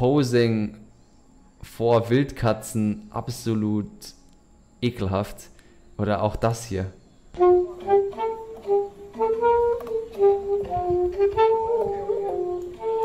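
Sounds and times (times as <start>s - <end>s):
saxophone slow melody: 7.4s - 13.0s.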